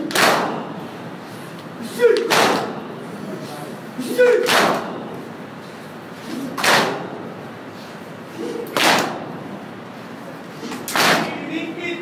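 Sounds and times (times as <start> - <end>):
group chest slaps: 0.0 - 0.8, 2.0 - 2.9, 4.1 - 5.2, 6.2 - 7.3, 8.4 - 9.4, 10.6 - 11.4
crowd noise: 0.0 - 12.0.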